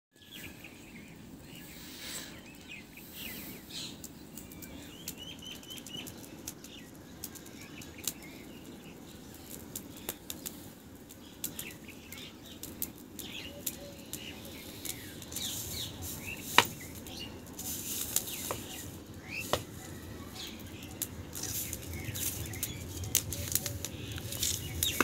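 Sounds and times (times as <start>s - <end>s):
small birds chirping: 0.1s - 25.0s
wood fire crackling and popping: 2.5s - 25.0s.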